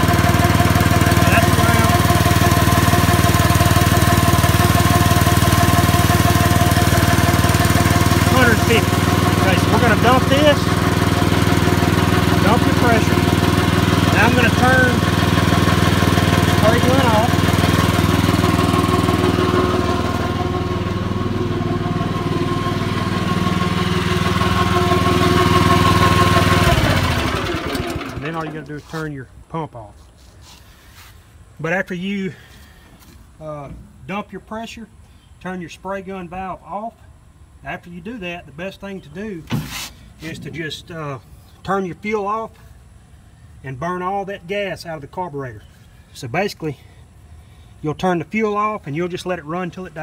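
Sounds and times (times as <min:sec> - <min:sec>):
small gasoline pump engine running: 0:00.0 - 0:29.0.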